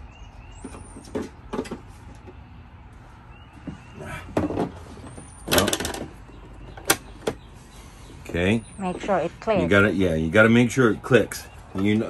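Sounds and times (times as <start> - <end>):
plastic knocks and rattles: 3.6 - 7.4.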